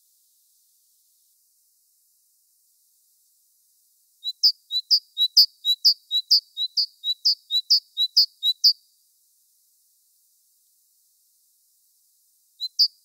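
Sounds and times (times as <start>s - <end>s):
great tit singing: 4.2s - 8.9s, 12.6s - 13.0s.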